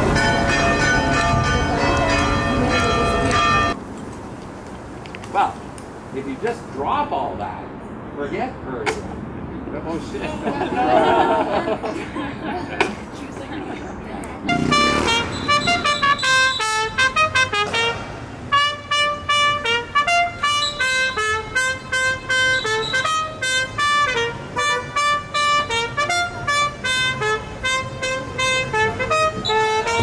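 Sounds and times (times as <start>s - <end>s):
reed instrument melody: 0.0s - 3.8s, 14.5s - 30.0s.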